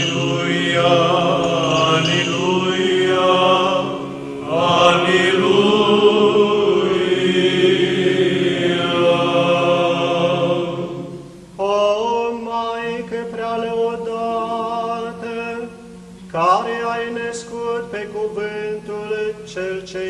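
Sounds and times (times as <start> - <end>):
voices chanting: 0.0 - 11.4
low held drone note: 0.0 - 19.2.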